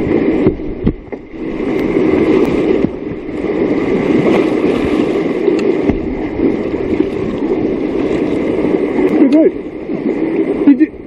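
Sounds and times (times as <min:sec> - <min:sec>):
whitewater rushing: 0:00.0 - 0:11.0
light knocks on kayak: 0:05.6 - 0:06.1.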